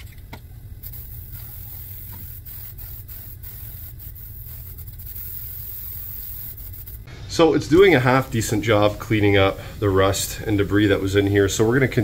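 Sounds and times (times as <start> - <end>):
aerosol can spraying: 0.8 - 7.1.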